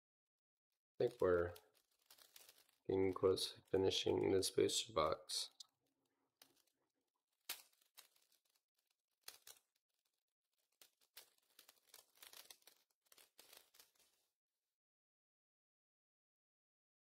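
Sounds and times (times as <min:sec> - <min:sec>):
foil wrapper crinkling: 0:01.0 - 0:04.6, 0:05.5 - 0:14.3.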